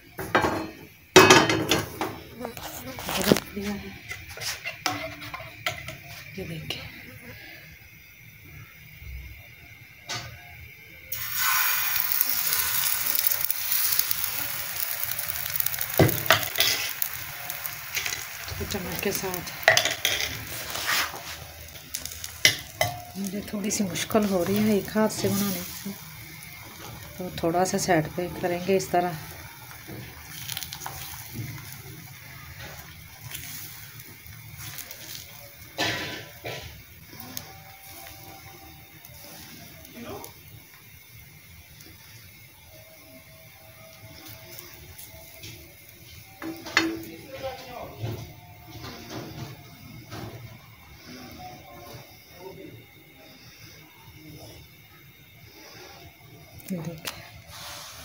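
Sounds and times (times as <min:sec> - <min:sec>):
batter sizzling on hot pan: 0:00.0 - 0:58.0
metal spoon scraping griddle: 0:15.0 - 0:26.0.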